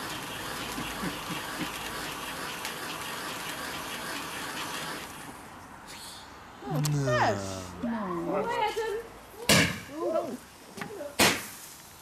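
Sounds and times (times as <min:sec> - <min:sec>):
firework spraying sparks hiss: 0:11.3 - 0:12.0.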